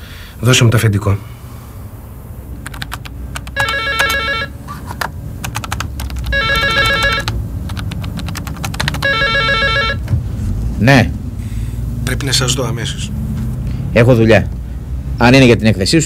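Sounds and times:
laptop keyboard clicking: 2.6 - 4.2, 4.9 - 9.2
telephone ringing electronic trill: 3.5 - 4.6, 6.3 - 7.4, 8.9 - 10.0.

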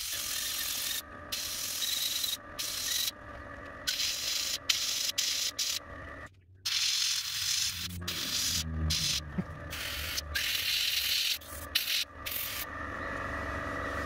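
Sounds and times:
airbrush spraying paint: 3.9 - 5.8, 6.7 - 12.7.

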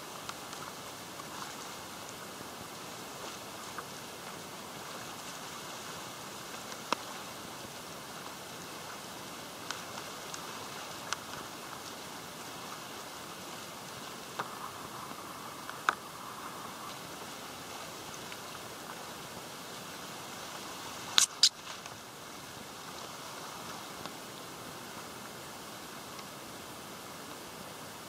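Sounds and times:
spray pattering on camera: 21.1 - 21.9
sharp ticks: 21.2 - 21.5.

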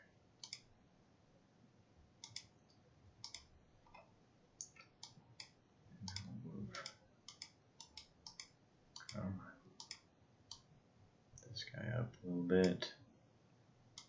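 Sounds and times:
computer mouse clicking: 0.4 - 0.7, 2.2 - 2.5, 3.2 - 9.2, 9.8 - 10.7.

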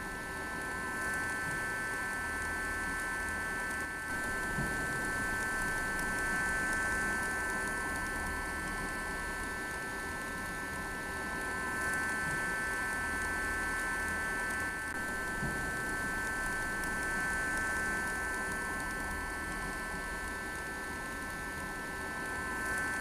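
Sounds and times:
fan vacuum whining: 4.1 - 8.4.

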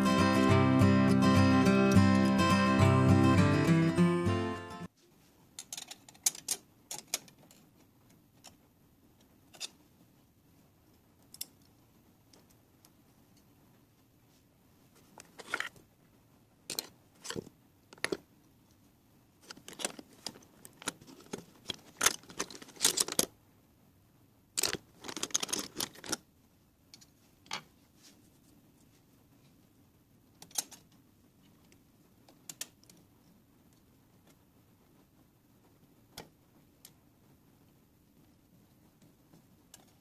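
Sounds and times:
small hardware clicking and rattling: 5.6 - 7.7.

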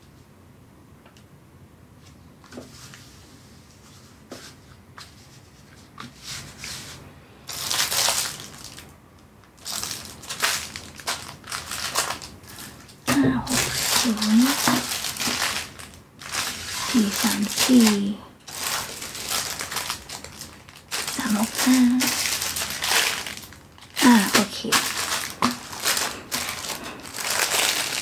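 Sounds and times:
plastic bags crinkling: 7.5 - 28.0.

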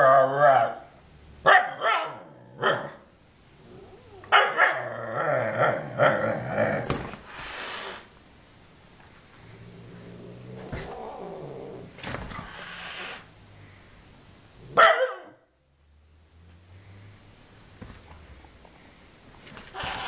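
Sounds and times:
cat growling and yowling: 0.0 - 0.8, 3.6 - 6.9, 9.7 - 12.8, 19.7 - 20.0.

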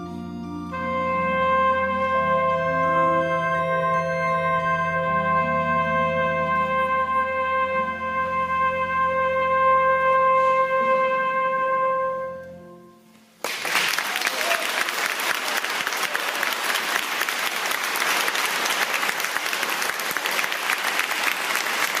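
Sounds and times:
low accompaniment chord: 0.0 - 13.4
trumpet held note: 0.7 - 13.2
audience applause: 13.4 - 22.0.

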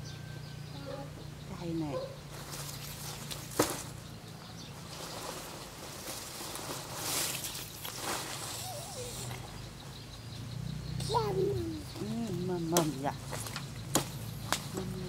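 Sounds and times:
dry leaves rustling: 2.2 - 9.8, 11.1 - 15.0.

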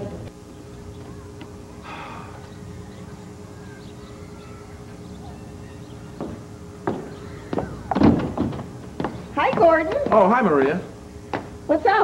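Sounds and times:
steady low hum: 0.0 - 12.0
door thumping: 6.2 - 10.2
footsteps on steps: 6.2 - 11.6.

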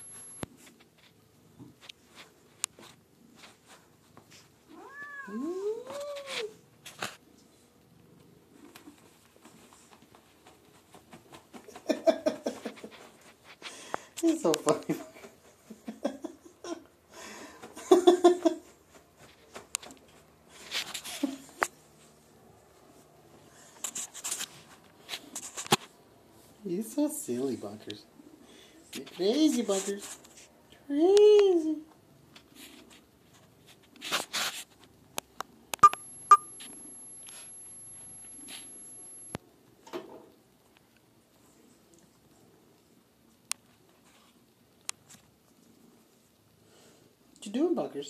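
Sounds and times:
short electronic beeps: 0.0 - 0.4, 35.8 - 39.4
faint high-pitched whine: 0.0 - 2.8, 35.7 - 48.0
soft rustle: 0.1 - 11.6, 18.4 - 30.6, 31.8 - 35.2, 40.7 - 47.4
person laughing: 11.7 - 12.9, 17.8 - 18.7.

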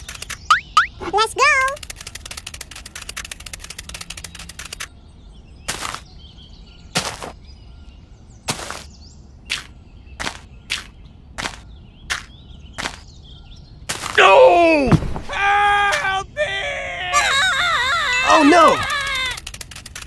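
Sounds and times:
faint birdsong: 0.0 - 20.0
shovel digging into sand: 5.7 - 6.1, 7.0 - 7.4, 8.5 - 8.9.

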